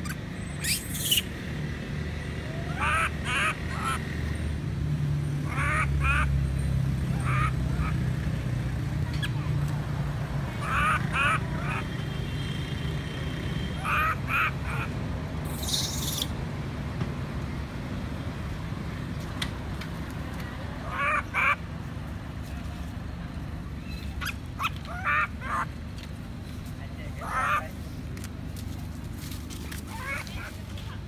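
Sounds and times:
baby monkey crying: 2.5s - 4.0s, 5.5s - 6.4s, 7.2s - 8.0s, 10.6s - 11.9s, 13.8s - 14.9s, 24.6s - 25.7s, 27.2s - 27.6s.

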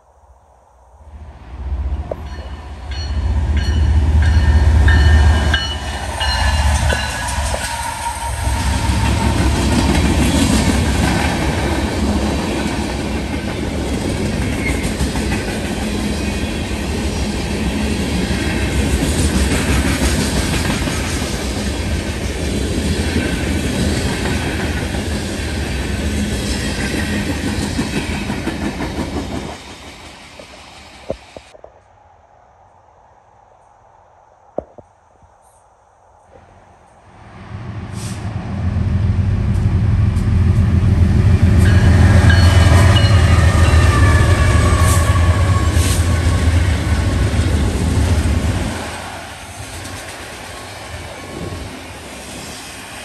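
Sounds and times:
train wheels clacking on rail joints: 2.1s - 16.2s.

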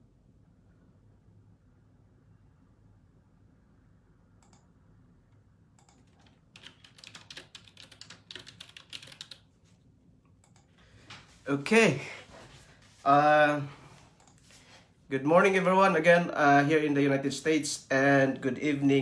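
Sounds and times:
faint keyboard typing: 4.4s - 4.7s, 5.7s - 11.3s, 13.4s - 14.6s.

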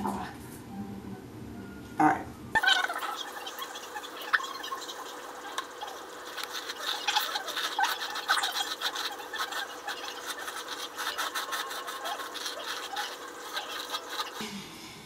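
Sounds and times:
hairbrush through wet hair: 4.6s - 14.4s.

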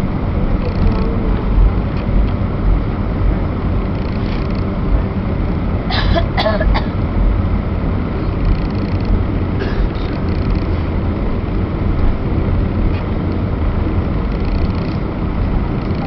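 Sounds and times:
airplane cabin rumble: 0.0s - 16.0s.

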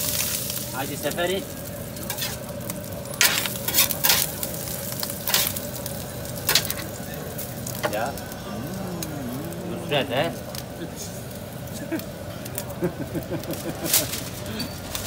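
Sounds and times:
meat sizzling on grill: 0.0s - 15.0s
knife scraping metal: 2.0s - 2.4s, 3.2s - 4.3s.

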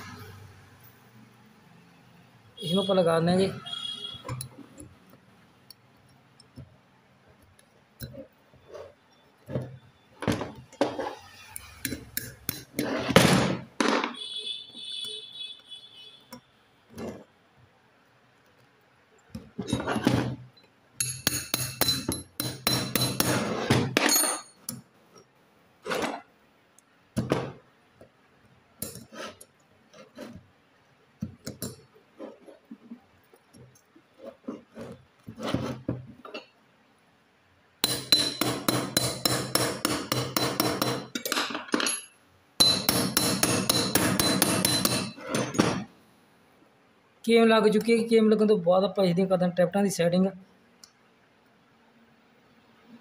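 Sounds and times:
tools clinking on metal: 21.0s - 23.3s, 24.0s - 24.8s, 37.8s - 45.9s.

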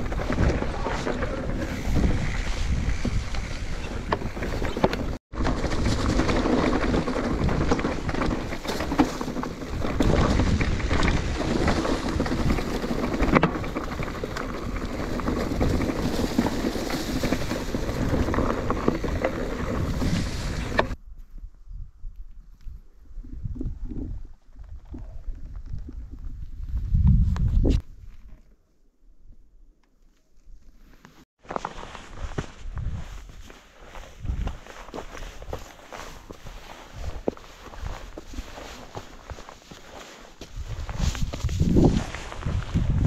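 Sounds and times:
wind buffeting microphone: 0.0s - 6.6s, 9.7s - 27.9s, 34.1s - 35.5s, 40.4s - 43.0s
bike rattling and knocking: 0.0s - 21.0s
bike tyre noise: 0.0s - 21.0s, 30.6s - 43.0s.

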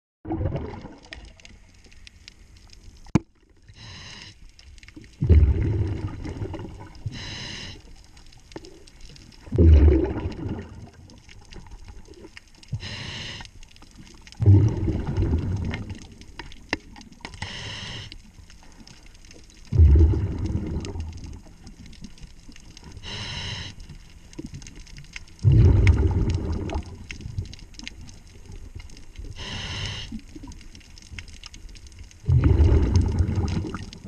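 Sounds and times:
exhaled bubbles bursting: 0.2s - 1.6s, 5.0s - 7.3s, 8.6s - 13.0s, 14.4s - 17.2s, 19.6s - 22.2s, 25.3s - 28.7s, 32.2s - 34.0s
hissing regulator inhale: 3.7s - 4.4s, 7.0s - 7.9s, 12.7s - 13.5s, 17.3s - 18.2s, 22.9s - 23.9s, 29.4s - 30.2s.

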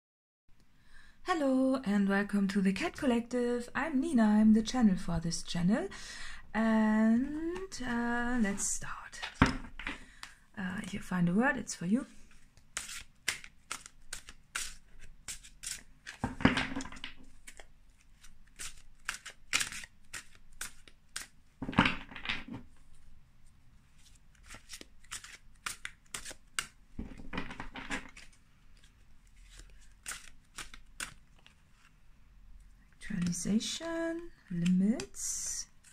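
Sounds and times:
cards rustling in shuffles: 12.2s - 22.9s, 23.9s - 32.0s, 33.1s - 33.5s
cards clicking and slapping: 12.3s - 22.6s, 24.3s - 31.9s.

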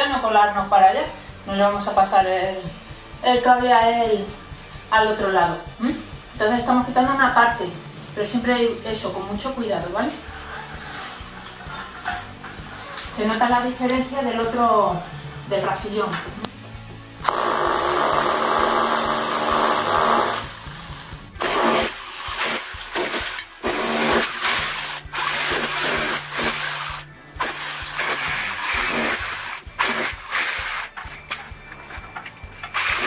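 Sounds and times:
electric hammer chiselling brick: 17.2s - 31.1s, 32.6s - 33.0s.

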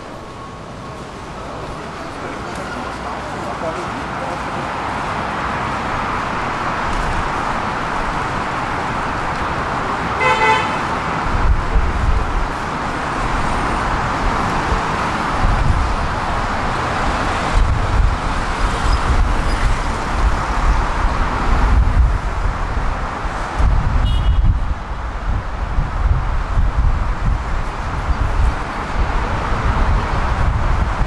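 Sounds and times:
road traffic noise: 0.0s - 31.0s
short horn toot: 24.0s - 24.6s.

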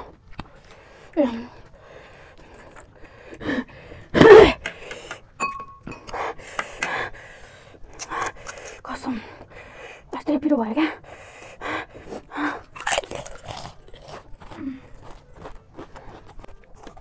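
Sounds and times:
people gasping and exhaling: 0.5s - 10.1s
metal spoon clinking on glass bowl: 5.4s - 6.1s.

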